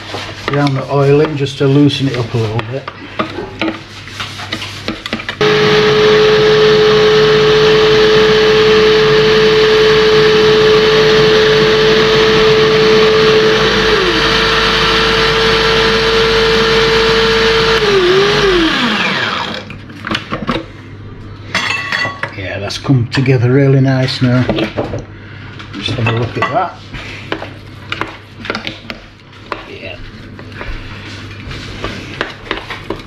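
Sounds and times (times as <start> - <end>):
food processor motor whining: 5.4 - 19.8.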